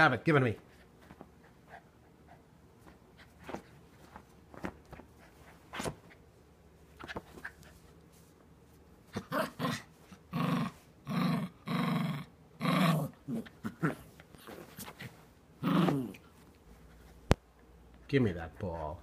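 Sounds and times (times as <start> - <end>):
small dog growling: 9.1 - 14.9, 15.6 - 16.3.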